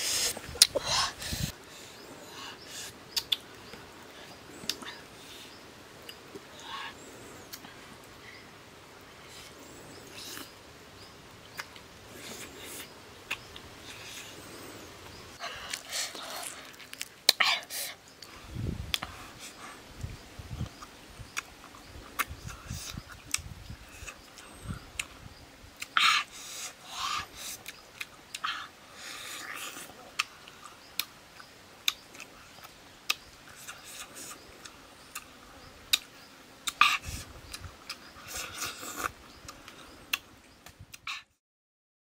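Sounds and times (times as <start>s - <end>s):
hissy sucking sounds: 0.0s - 3.0s
sharp wet clicks: 3.1s - 3.5s.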